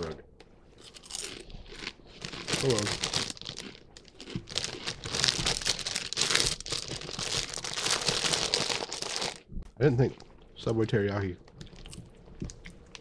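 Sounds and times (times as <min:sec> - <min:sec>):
chip bag crinkling: 0:00.8 - 0:09.4.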